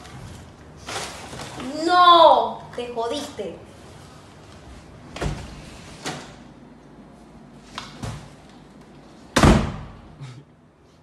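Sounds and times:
door slamming shut: 9.4s - 10.0s.

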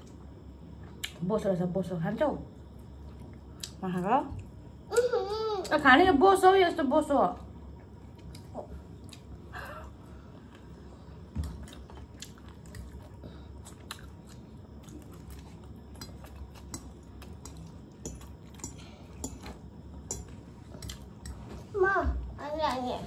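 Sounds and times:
chewing noodles: 11.6s - 19.4s.

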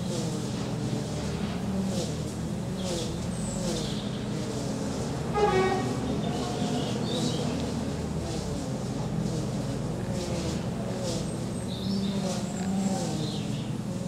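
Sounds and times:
horn-like honk: 5.3s - 6.0s
small birds chirping: 11.3s - 13.8s.

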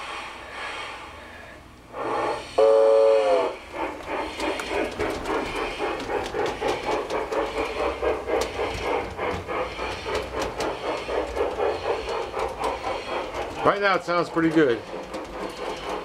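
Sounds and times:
model train steam hiss: 0.0s - 16.0s
steam locomotive chuffing: 0.0s - 16.0s
steam whistle blast: 2.1s - 3.6s.

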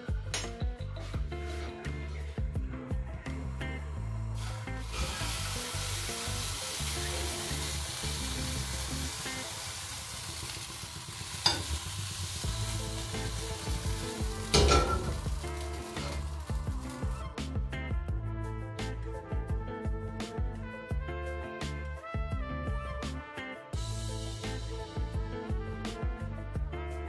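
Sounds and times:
batter sizzling in frying pan: 4.4s - 17.4s
ladle clinking against pan: 14.6s - 15.1s.

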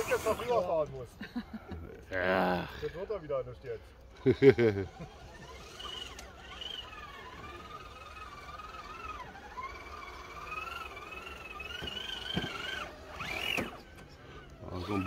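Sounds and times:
electric motor whining: 0.0s - 0.9s, 3.9s - 15.0s.

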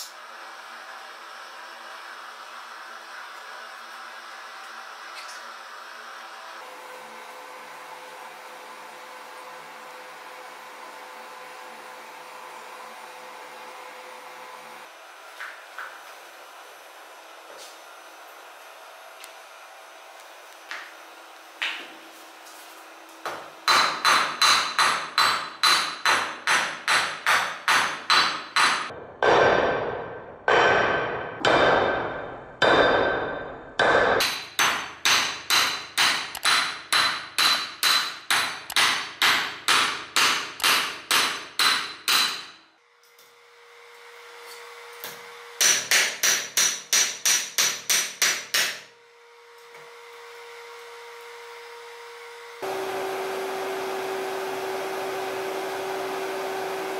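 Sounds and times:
hammer striking iron on anvil: 23.3s - 42.6s, 45.6s - 48.9s.

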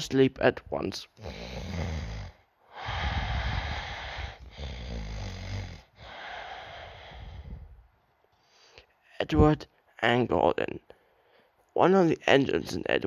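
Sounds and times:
person snoring: 1.2s - 7.7s.

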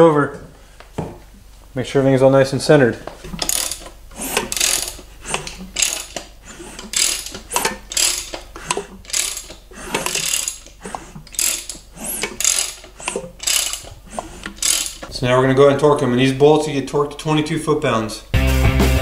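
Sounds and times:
ratchet wrench clicking: 3.3s - 15.1s.

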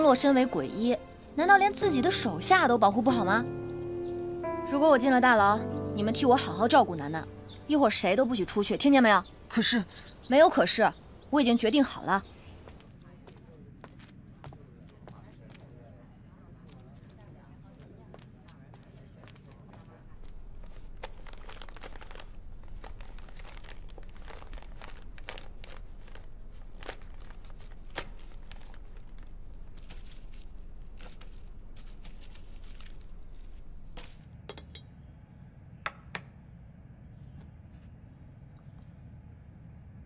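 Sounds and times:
paper crinkling and rustling: 20.2s - 34.3s.

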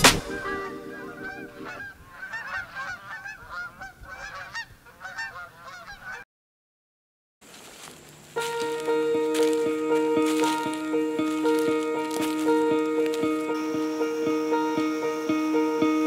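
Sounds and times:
geese honking in flight: 0.3s - 6.2s.

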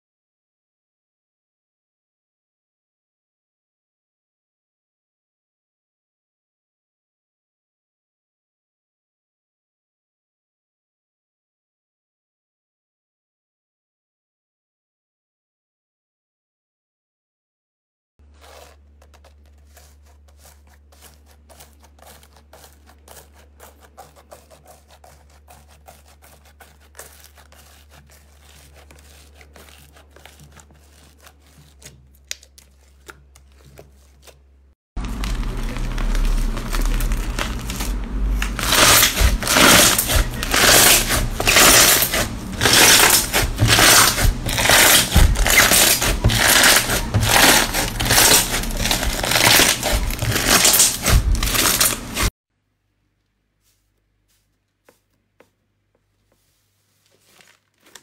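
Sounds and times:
bead slime crunching: 35.0s - 52.3s
slime crackling and popping: 35.0s - 52.3s.

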